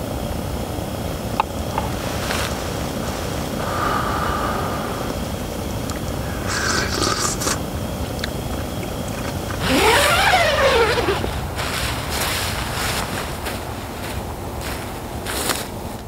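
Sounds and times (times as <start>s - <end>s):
gas stove burner hissing: 0.0s - 8.4s.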